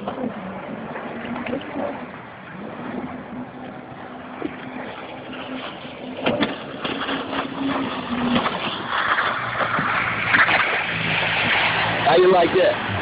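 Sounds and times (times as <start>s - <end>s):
jet ski engine running: 0.0s - 13.0s
rushing water and spray: 0.0s - 13.0s.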